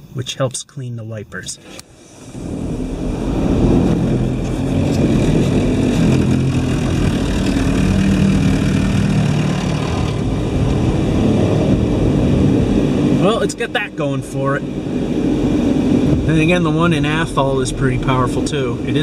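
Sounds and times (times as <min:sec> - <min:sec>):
low hum: 0:01.2 - 0:19.0
high-pressure water jets on car: 0:03.3 - 0:13.4.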